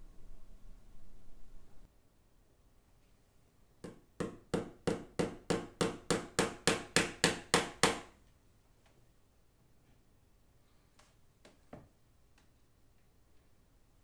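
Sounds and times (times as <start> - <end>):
hammer tapping a nail into wood: 3.8 - 8.1.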